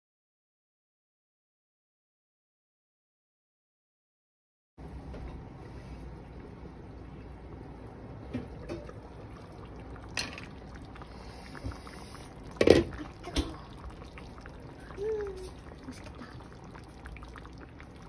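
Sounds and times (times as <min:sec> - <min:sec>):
soup bubbling at a simmer: 0:05.5 - 0:18.0.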